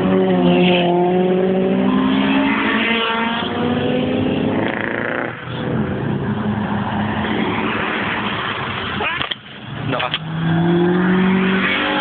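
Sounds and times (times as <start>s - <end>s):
car engines revving: 0.0s - 12.0s.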